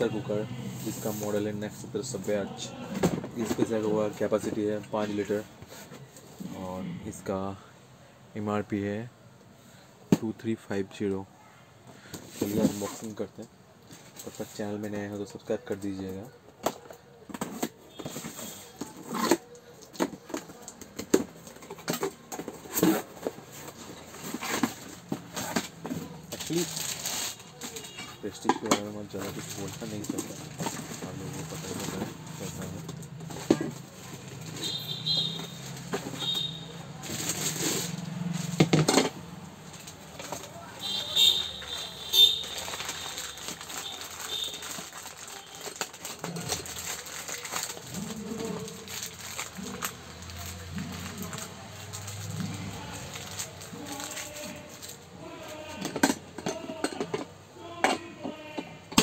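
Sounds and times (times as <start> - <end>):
rustling of plastic wrapping: 0.0 - 6.4, 12.2 - 56.0
scraping and light knocks: 12.1 - 13.2, 16.7 - 45.1
plastic bag crinkling: 17.9 - 38.4, 39.7 - 55.6.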